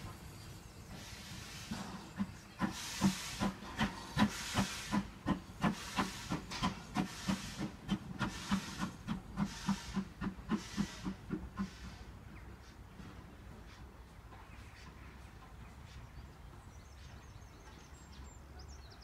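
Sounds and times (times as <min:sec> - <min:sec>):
steam hissing: 0:00.0 - 0:13.8
steam locomotive chuffing: 0:00.0 - 0:18.0.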